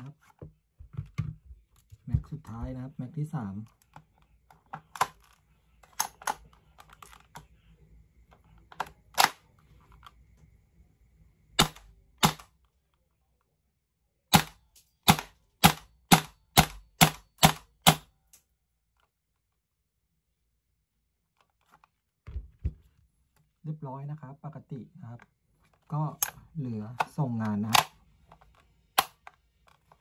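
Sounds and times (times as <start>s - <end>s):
airsoft rifle shots: 11.6s - 12.5s, 14.3s - 18.0s.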